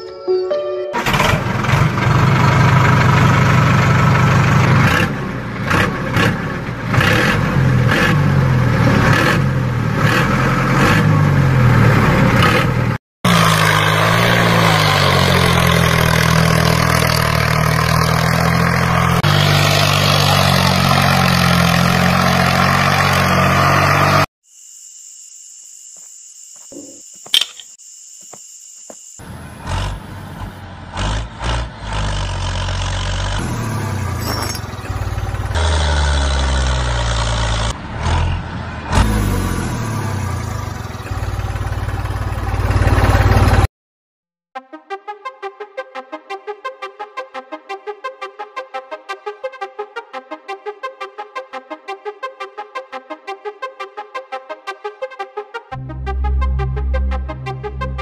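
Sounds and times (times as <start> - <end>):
engine running: 1.0 - 24.3, 29.2 - 43.7.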